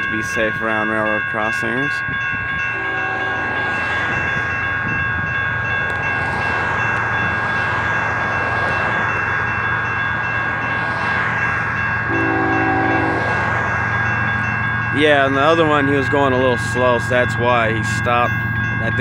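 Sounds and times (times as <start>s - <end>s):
level crossing warning bell: 0.0s - 19.0s
locomotive horn chord: 2.7s - 3.8s, 12.1s - 13.4s.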